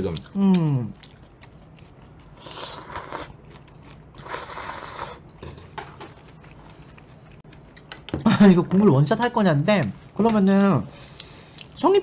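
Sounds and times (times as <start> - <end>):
noodles slurped: 2.3 - 5.2.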